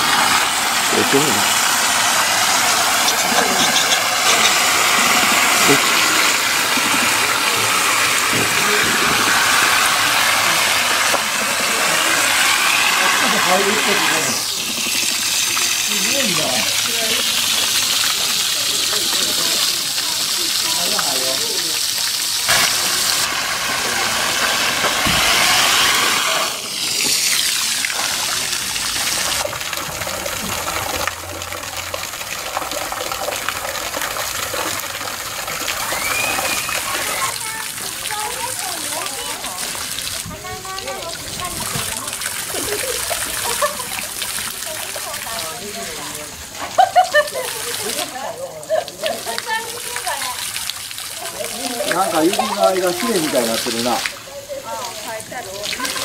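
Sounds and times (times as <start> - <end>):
water gushing into rocky pool: 0.0 - 56.0.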